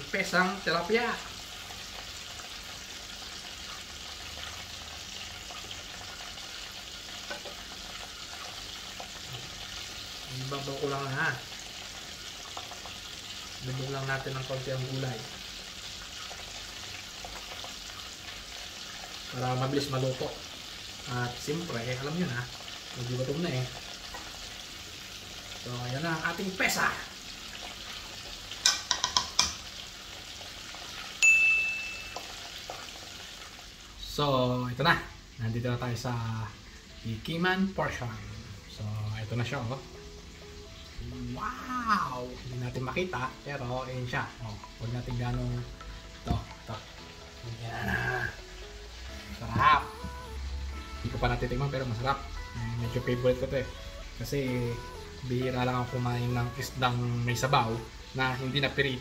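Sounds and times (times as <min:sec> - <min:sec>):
pots hissing on gas stove: 0:00.0 - 0:59.0
ladle clinking in pot: 0:28.6 - 0:29.6
bright ringing tone: 0:31.2 - 0:32.5.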